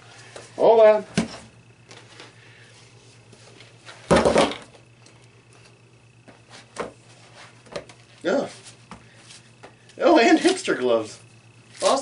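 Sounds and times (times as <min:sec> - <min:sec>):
knocks on wooden workbench: 0:04.1 - 0:04.6
rustling and handling noise: 0:04.7 - 0:12.0.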